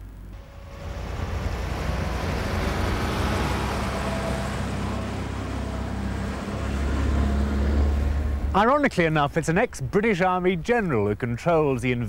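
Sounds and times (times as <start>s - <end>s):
car engine rumble: 0.0s - 11.8s.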